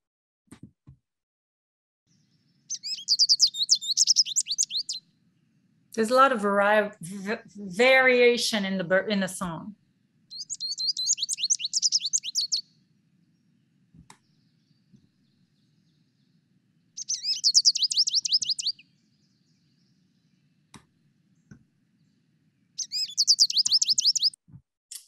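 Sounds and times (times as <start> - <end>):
bird twittering: 2.6 - 5.0, 10.3 - 12.7, 16.9 - 20.4, 22.8 - 24.4.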